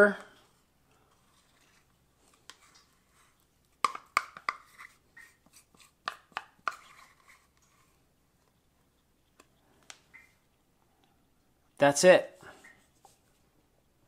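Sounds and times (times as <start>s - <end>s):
metal spoon scraping plastic jar: 1.1s - 8.0s.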